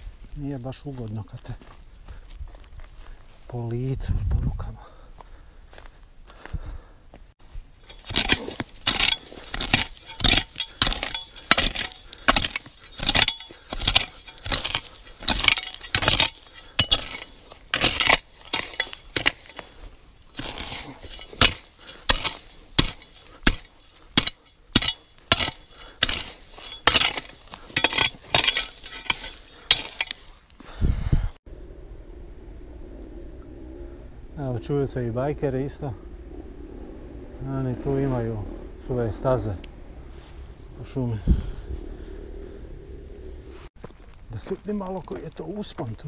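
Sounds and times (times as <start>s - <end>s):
machete chopping through brush: 8.0s - 19.7s, 20.4s - 30.3s.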